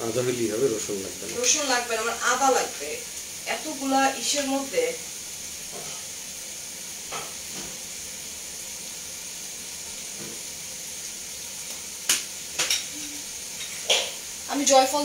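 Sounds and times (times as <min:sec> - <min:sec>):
meat sizzling in a pan: 0:00.0 - 0:15.0
knocks on pan: 0:12.1 - 0:12.9.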